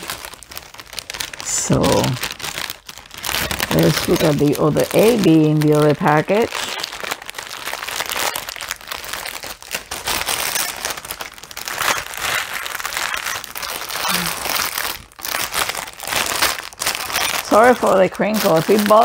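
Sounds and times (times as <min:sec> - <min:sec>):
plastic bag crinkling: 0:00.0 - 0:19.0.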